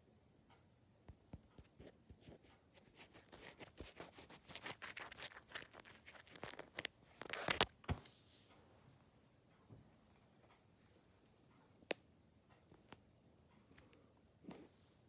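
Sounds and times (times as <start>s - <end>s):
handling rustles and clicks: 1.5s - 8.2s.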